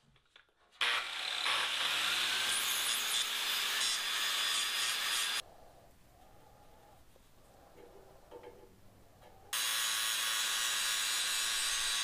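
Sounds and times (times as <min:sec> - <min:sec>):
angle grinder grinding steel: 0:09.6 - 0:12.0.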